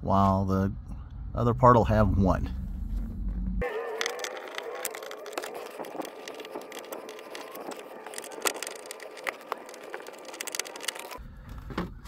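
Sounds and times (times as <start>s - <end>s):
screwdriver clicks and scrapes: 3.8s - 11.2s.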